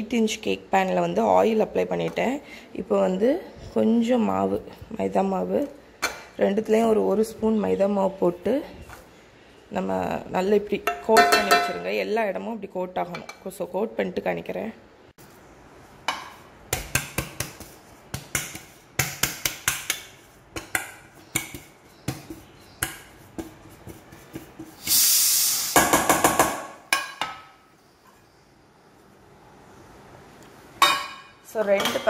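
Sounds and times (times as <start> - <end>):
cake pans tapped and knocked: 10.8 - 11.9, 16.0 - 24.8, 25.8 - 27.6
flour shaken in pan: 22.2 - 25.0.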